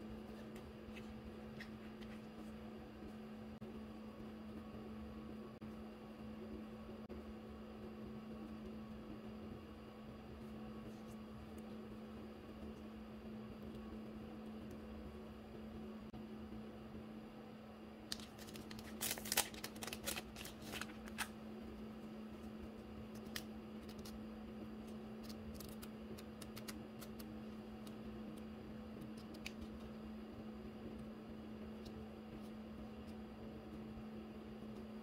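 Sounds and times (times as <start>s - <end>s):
paper strips ticking: 18.1s - 21.3s, 25.1s - 28.0s
plastic bag crinkling: 18.1s - 21.3s.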